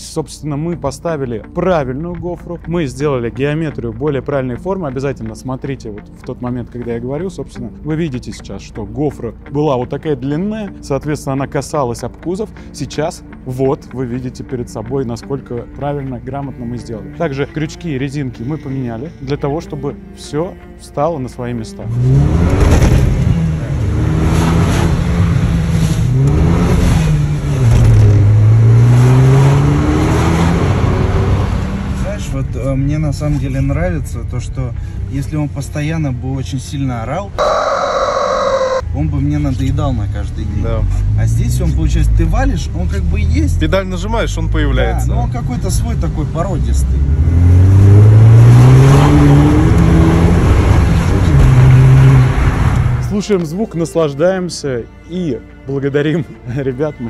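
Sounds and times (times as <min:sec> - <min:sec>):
car engine accelerating: 0:21.8 - 0:32.5, 0:37.4 - 0:53.1.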